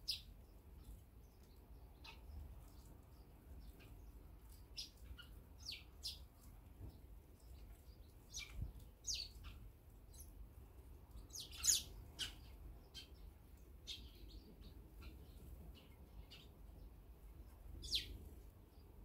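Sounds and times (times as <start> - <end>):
sparrows chirping: 0.0 - 19.0.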